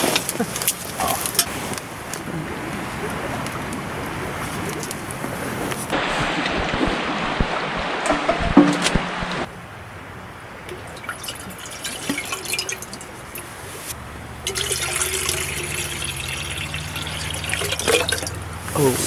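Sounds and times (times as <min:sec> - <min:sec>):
water pouring into a kettle: 0:10.8 - 0:13.5, 0:14.5 - 0:18.3.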